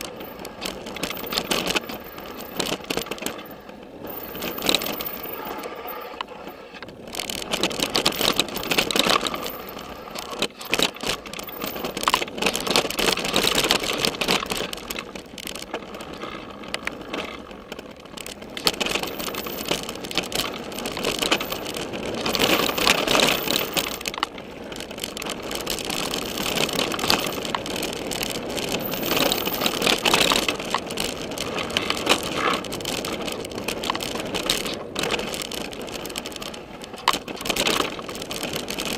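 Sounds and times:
bike rattling and clattering: 0:00.0 - 0:38.9
tyres crunching over stones: 0:00.0 - 0:38.9.

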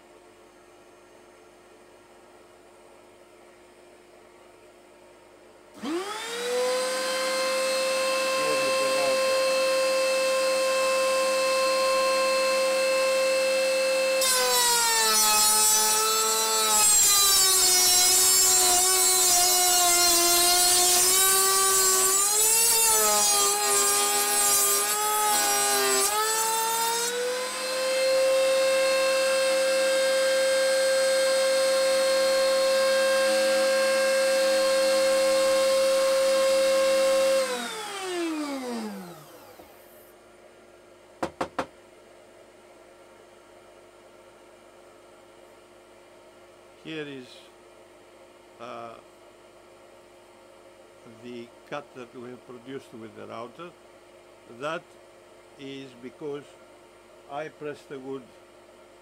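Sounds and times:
router cutting wood: 0:05.8 - 0:40.1
router motor whine: 0:05.8 - 0:40.1.

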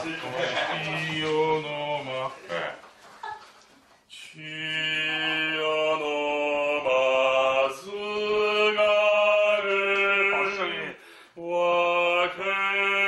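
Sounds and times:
man singing operatically: 0:00.0 - 0:02.8, 0:04.1 - 0:13.0.

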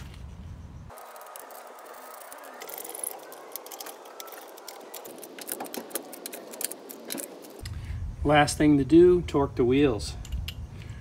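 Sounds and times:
speed wrench spinning lug nuts: 0:00.9 - 0:07.6.

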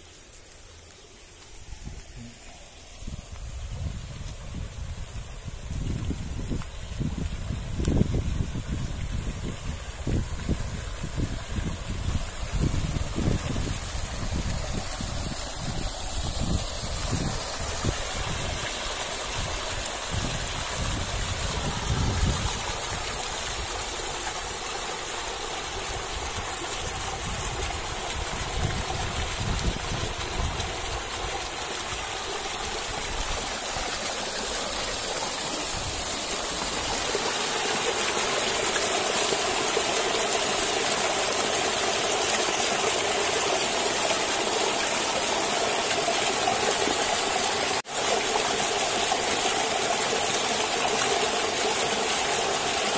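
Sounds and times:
waterfall pouring and splashing: 0:00.0 - 0:52.9
wind buffeting microphone: 0:03.0 - 0:23.9, 0:25.9 - 0:31.6.

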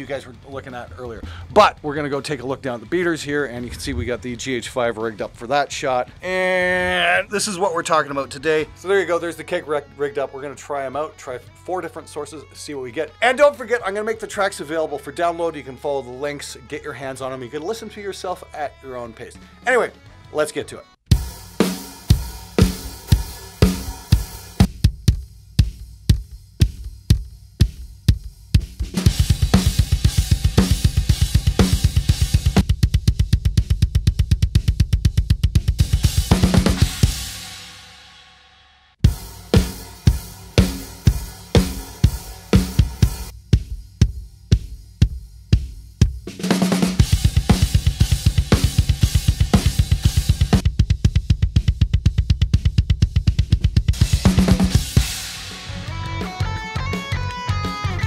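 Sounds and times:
cymbals and snare: 0:21.1 - 0:58.0
bass drum pedal kicks: 0:22.1 - 0:37.2, 0:39.0 - 0:55.2.

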